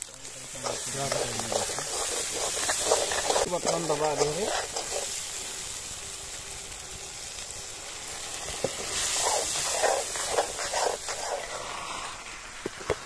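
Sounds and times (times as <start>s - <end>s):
onions sizzling in hot oil: 0.0s - 13.0s
metal ladle scraping and stirring: 0.4s - 5.2s, 8.8s - 11.7s.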